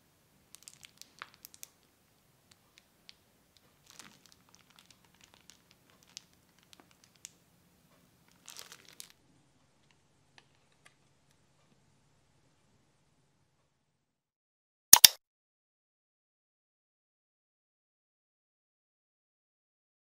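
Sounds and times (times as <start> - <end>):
plastic piping bag crinkling: 0.5 - 1.9, 2.5 - 7.4, 8.2 - 9.2.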